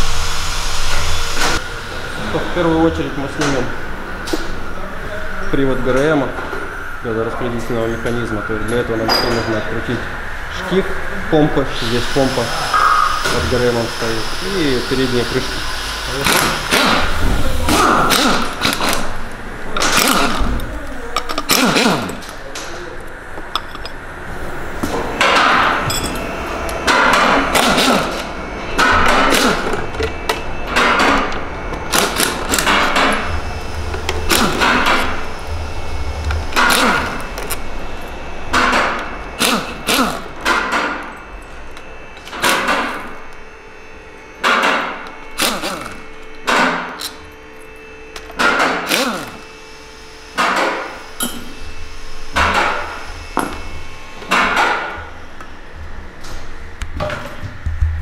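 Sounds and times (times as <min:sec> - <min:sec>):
metal tools clanking on engine: 0:09.1 - 0:09.6, 0:23.4 - 0:24.0, 0:25.8 - 0:26.3.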